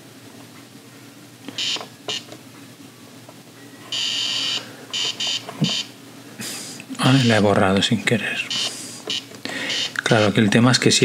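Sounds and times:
high electronic buzz: 7.0s - 7.5s, 8.5s - 10.4s.

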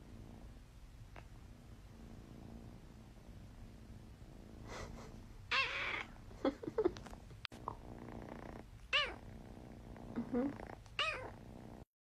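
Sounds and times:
cat meowing: 5.5s - 6.1s.

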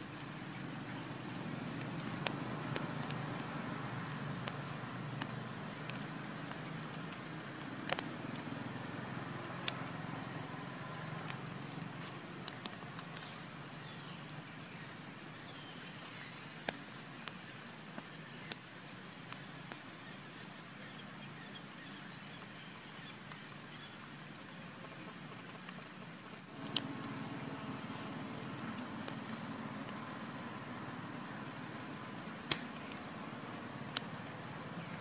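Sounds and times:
clicks and crackles of dry leaves: 0.0s - 35.0s
low outdoor rumble: 0.0s - 35.0s.

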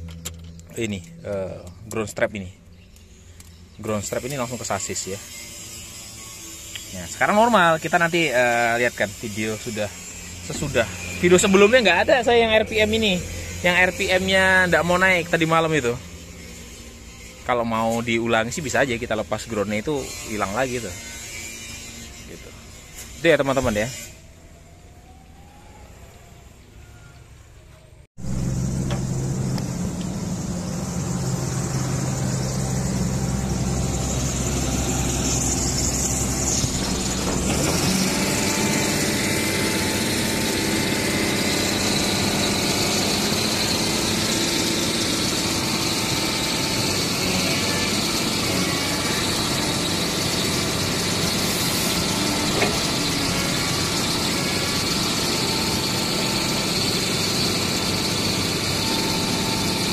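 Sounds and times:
excavator diesel engine running: 28.2s - 59.9s.

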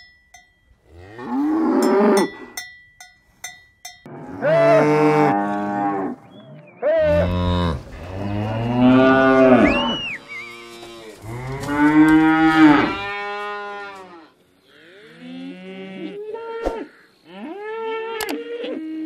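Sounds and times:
cows mooing: 0.9s - 2.6s, 4.1s - 16.6s.

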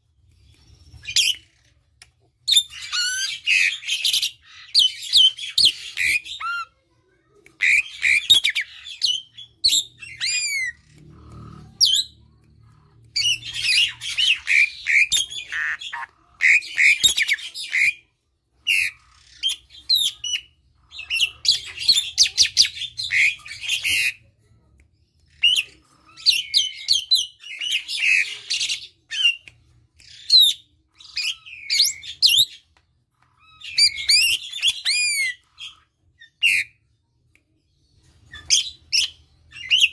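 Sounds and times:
starling singing: 7.6s - 18.0s, 18.7s - 24.2s.

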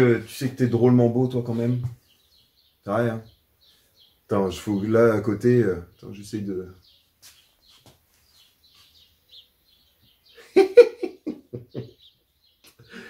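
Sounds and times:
faint bird chirps: 0.0s - 13.0s
man chuckling: 10.3s - 13.0s.

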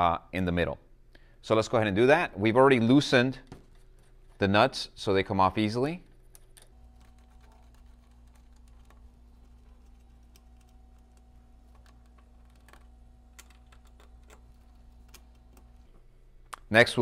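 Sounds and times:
small metal clicks: 6.3s - 16.6s
wire leads handled: 6.3s - 16.6s
low hum: 6.6s - 16.6s.

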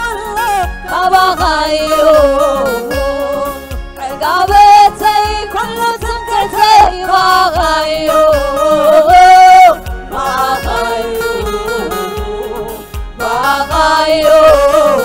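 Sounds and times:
gospel choir singing: 0.0s - 15.0s
woman singing lead: 0.0s - 15.0s
steady drum beat: 0.6s - 15.0s.

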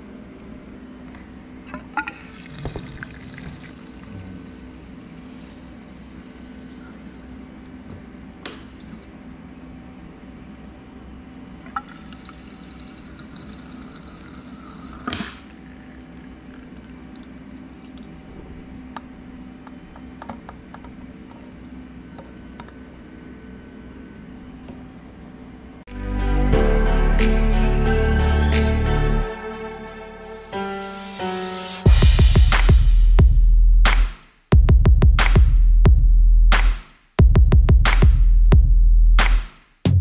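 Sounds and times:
fuel pouring and gurgling: 2.0s - 11.0s, 11.8s - 18.9s.

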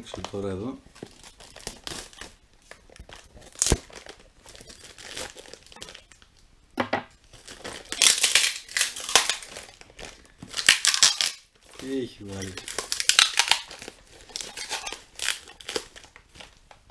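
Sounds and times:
plastic wrapping crinkling: 0.0s - 6.4s, 7.2s - 16.9s
tape and cardboard tearing: 3.5s - 4.1s, 7.8s - 9.6s.

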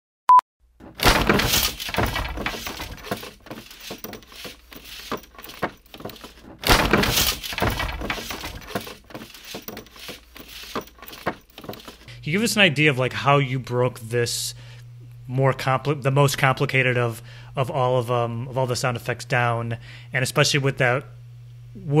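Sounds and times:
wooden boards cracking and splintering: 0.8s - 4.2s, 5.4s - 9.6s
debris clattering down: 0.8s - 9.6s.

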